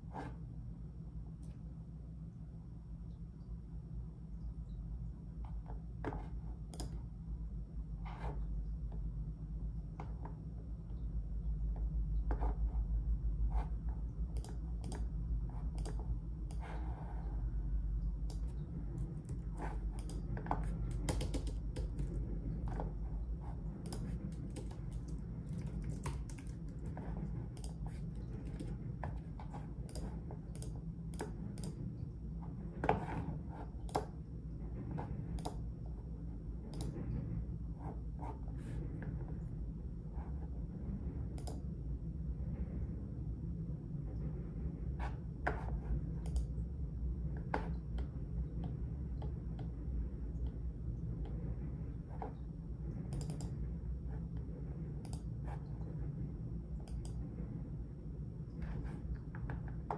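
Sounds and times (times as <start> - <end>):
steady low hum: 0.0 - 59.9
typing on computer keyboard: 18.3 - 22.2, 23.8 - 31.8.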